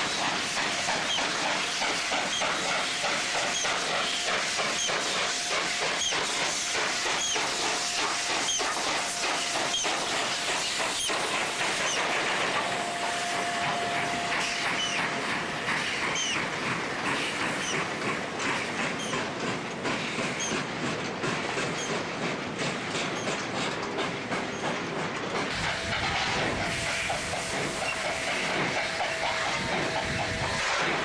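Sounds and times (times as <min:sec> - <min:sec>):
steam locomotive hissing: 0:00.0 - 0:31.0
wheels clacking over rail joints: 0:00.0 - 0:31.0
wheel squeal: 0:05.8 - 0:06.4, 0:07.1 - 0:15.1, 0:15.9 - 0:16.4.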